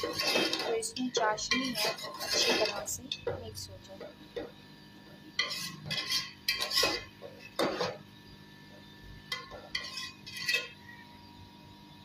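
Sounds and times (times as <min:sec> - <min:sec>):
spoon scraping a steel pot: 0:00.0 - 0:03.2, 0:05.3 - 0:08.0, 0:09.3 - 0:11.0.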